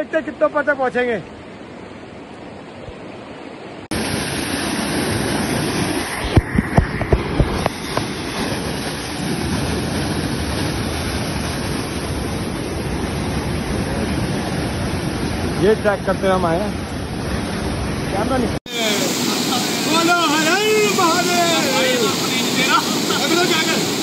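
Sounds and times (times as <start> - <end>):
water rushing over rocks: 0.0 - 24.0.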